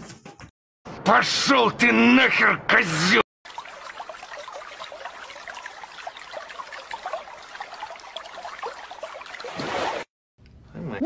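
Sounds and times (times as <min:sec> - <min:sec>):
bubbling gurgles: 0:03.4 - 0:10.1
water rushing down a vortex: 0:03.4 - 0:10.1.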